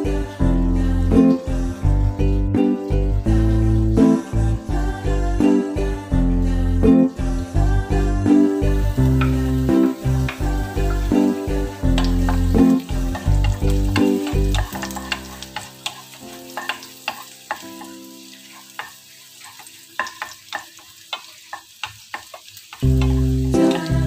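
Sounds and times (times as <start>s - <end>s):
background music: 0.0s - 20.8s, 22.8s - 24.0s
garlic sizzling in oil: 0.0s - 24.0s
spatula scraping and tapping pan: 9.2s - 9.5s, 11.9s - 23.9s.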